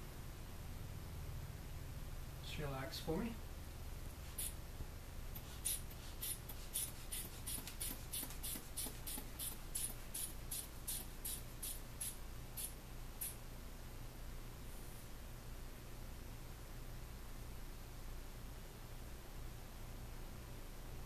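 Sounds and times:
hand bulb pumping puffs: 5.3 - 13.4.

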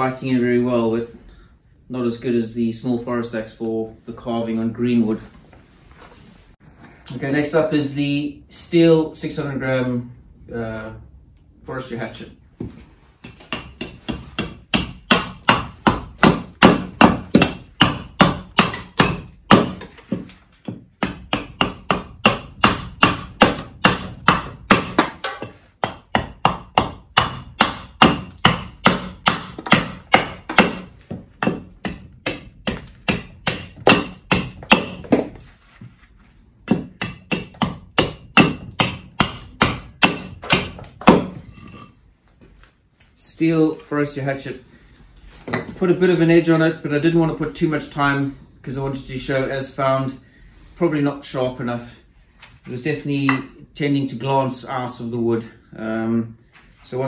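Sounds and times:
hatchet chopping wood: 13.2 - 35.4, 36.7 - 41.4.

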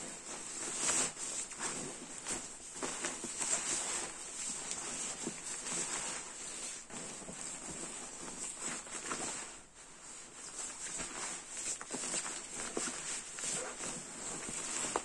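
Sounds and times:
crinkly fabric rustling: 0.0 - 15.0.

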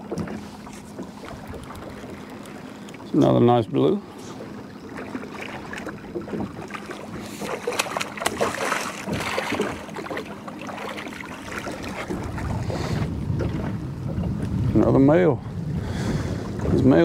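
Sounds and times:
fish splashing at water surface: 5.0 - 13.0.

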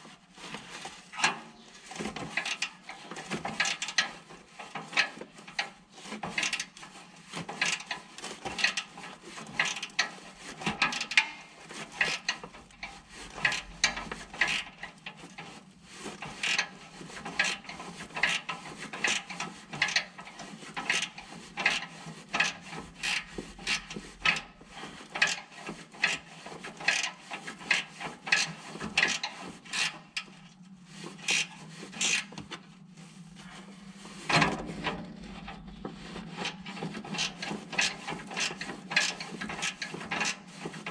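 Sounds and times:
steady low hum: 32.7 - 37.7.

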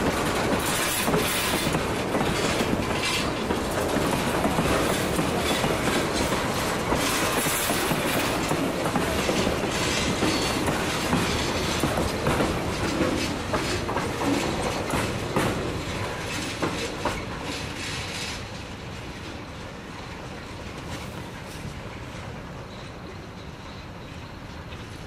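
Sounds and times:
wheels clicking over rail joints: 0.0 - 21.8
freight train wheels rumbling: 0.0 - 25.0.

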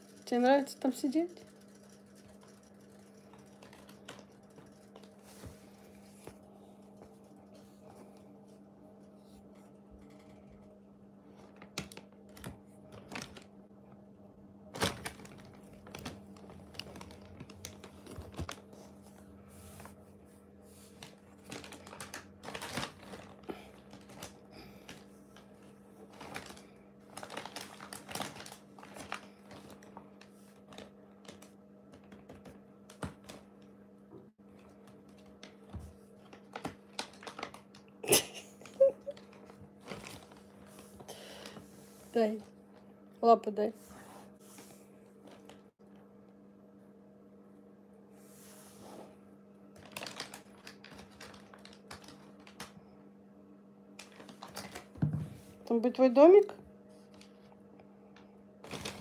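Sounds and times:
steady low hum: 0.0 - 49.8
plastic bag crinkling: 11.4 - 13.6, 14.7 - 18.8, 21.0 - 32.2, 36.2 - 41.5, 49.7 - 52.8, 54.0 - 55.0, 58.6 - 59.0.

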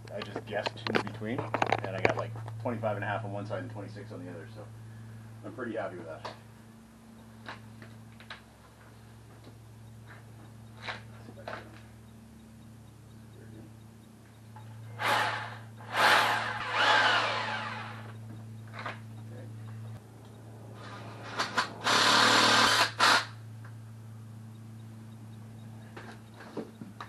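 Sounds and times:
cordless drill bursts: 15.0 - 18.1, 21.8 - 23.4.

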